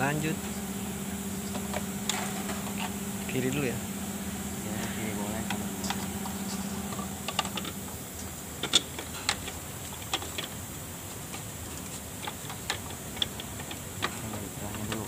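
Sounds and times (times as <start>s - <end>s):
plastic fan clicks and knocks: 5.2s - 7.8s, 8.6s - 10.6s, 11.3s - 15.0s.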